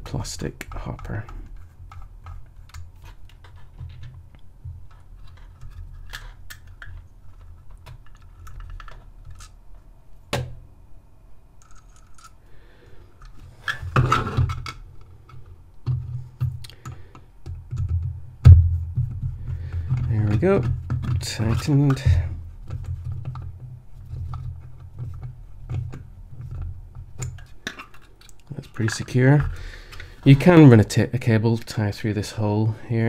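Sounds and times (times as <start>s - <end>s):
plastic part clattering: 0.7s - 9.6s.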